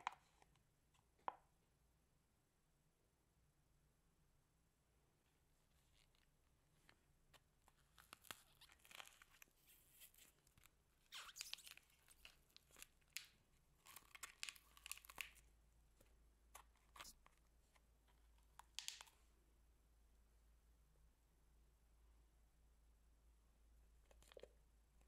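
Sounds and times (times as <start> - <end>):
slime crackling and popping: 8.0 - 15.4.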